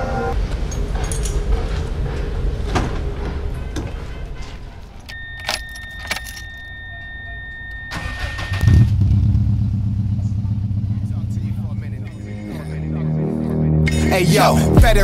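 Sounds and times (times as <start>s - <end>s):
keys jangling: 5.0s - 7.8s
high electronic warning tone: 5.1s - 8.9s
car engine idling: 6.8s - 12.4s
starter cranking: 7.8s - 8.9s.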